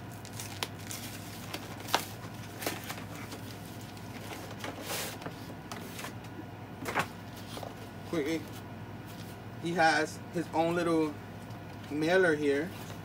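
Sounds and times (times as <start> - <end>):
cardboard crackling and rustling: 0.0 - 6.2, 6.8 - 9.4.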